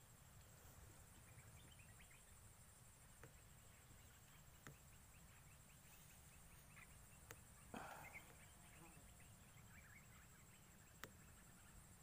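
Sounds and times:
faint high hiss: 0.0s - 12.0s
faint clicks: 10.8s - 11.4s.

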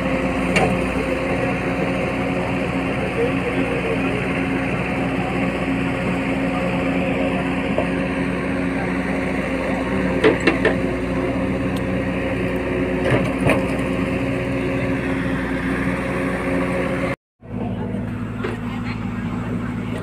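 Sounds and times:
engine humming: 0.0s - 20.0s.

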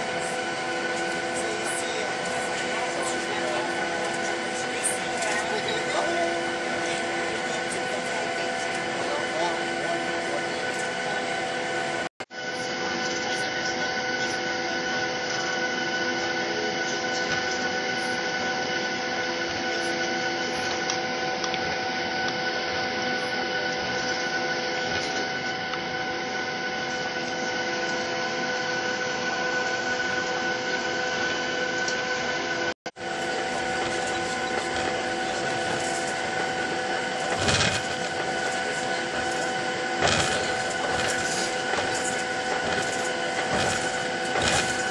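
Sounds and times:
jet engines whining: 0.0s - 44.9s
rushing hum: 33.0s - 44.9s.

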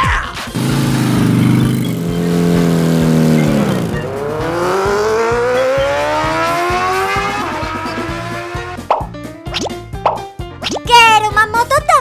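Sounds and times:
motorbike engine revving: 0.5s - 8.9s.

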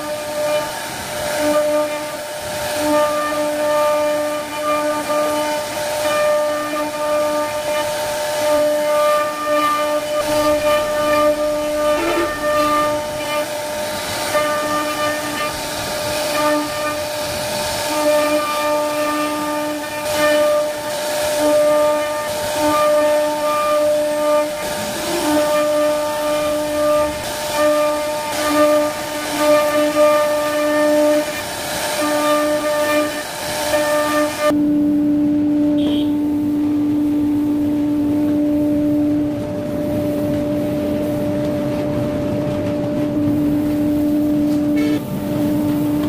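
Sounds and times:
cutter hissing in wood: 0.0s - 34.6s
cnc router spindle whining: 0.0s - 46.0s.

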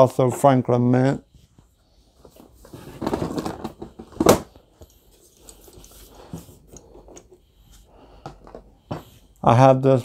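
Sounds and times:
figurines clattering in cardboard box: 2.6s - 4.5s.

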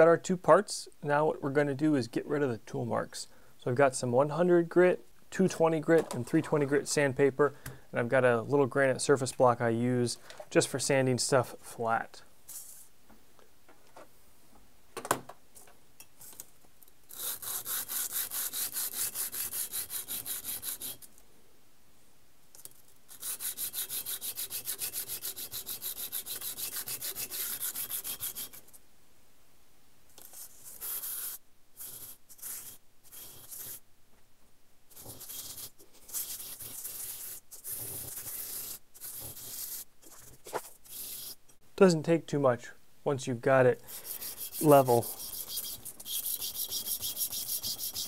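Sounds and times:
metal rubbed on sandpaper: 17.1s - 21.1s, 23.1s - 28.7s, 30.2s - 33.8s, 34.9s - 41.4s, 43.9s - 48.0s.

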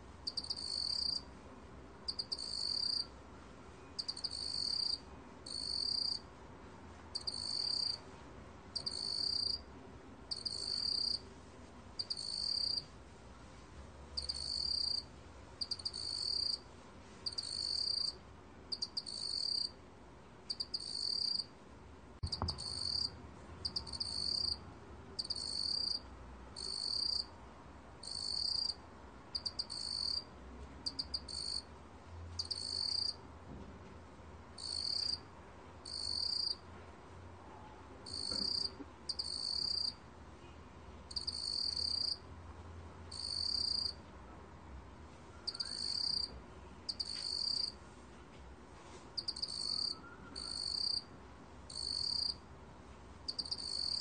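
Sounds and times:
cricket chirping: 0.3s - 1.3s, 2.1s - 3.1s, 4.0s - 6.2s, 7.2s - 8.0s, 8.8s - 9.6s, 10.3s - 11.2s, 12.0s - 12.8s, 14.2s - 15.0s, 15.6s - 16.6s, 17.3s - 19.7s, 20.5s - 21.5s, 22.3s - 24.6s, 25.2s - 26.0s, 26.6s - 27.3s, 28.0s - 30.3s, 30.9s - 31.6s, 32.4s - 33.2s, 34.6s - 35.2s, 35.8s - 36.6s, 38.0s - 40.0s, 41.1s - 42.2s, 43.1s - 44.0s, 45.5s - 46.3s, 46.9s - 47.8s, 49.2s - 51.1s, 51.7s - 52.4s, 53.3s - 54.0s
soft knock: 22.2s - 22.6s.

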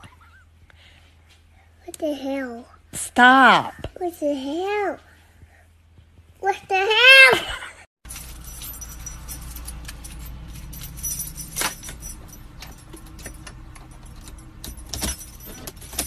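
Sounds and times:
keys jangling: 8.1s - 16.0s.

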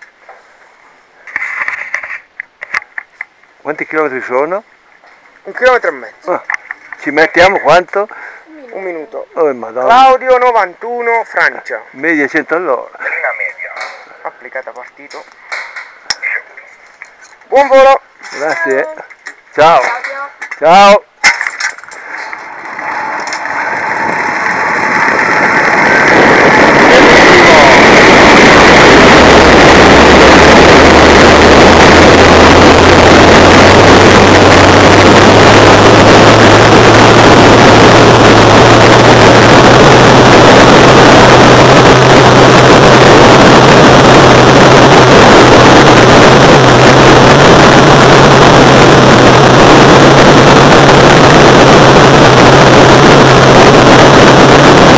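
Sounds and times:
low hum: 21.6s - 54.9s
wind rushing over microphone: 22.7s - 54.9s.

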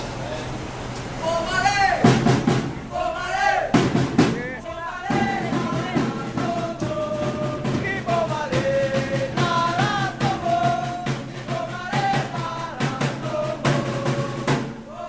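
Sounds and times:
crowd chanting in unison: 2.8s - 15.0s
bass drum beat: 3.8s - 14.8s.

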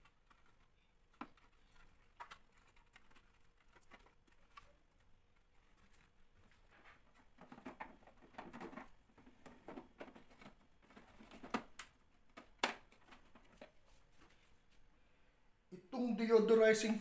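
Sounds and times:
plastic filter scraping: 0.0s - 11.8s
plastic clicks: 7.1s - 13.8s.

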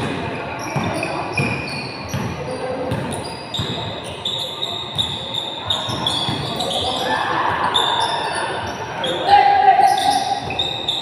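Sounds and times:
basketball bouncing: 0.0s - 4.0s, 5.8s - 6.7s
shoes squeaking on floor: 0.4s - 11.0s.

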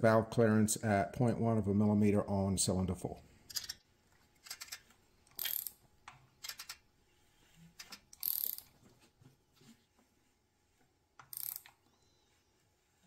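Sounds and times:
socket ratchet clicking: 4.4s - 5.8s, 6.4s - 6.8s, 8.2s - 8.7s, 11.2s - 11.8s.

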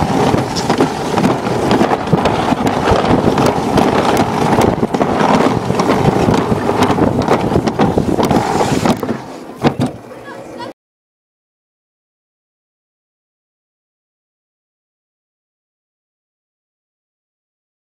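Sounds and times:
wind buffeting microphone: 0.0s - 10.5s
sled rattling down track: 0.0s - 10.7s.

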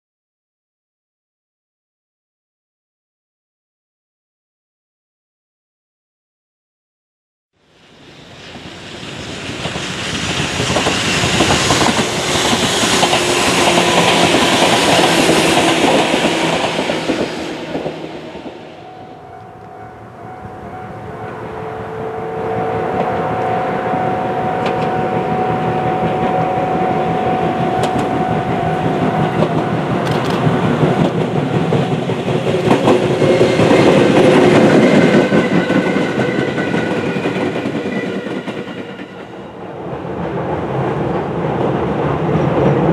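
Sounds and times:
electric train passing: 7.6s - 42.9s
train whine: 7.6s - 42.9s
train wheels clicking over rails: 8.2s - 19.8s, 22.9s - 42.9s.

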